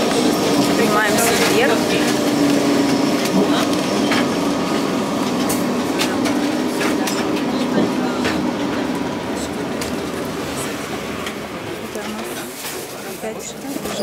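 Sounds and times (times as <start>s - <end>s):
tram rattling clicks and knocks: 0.0s - 14.0s
tram running on rails: 0.0s - 14.0s.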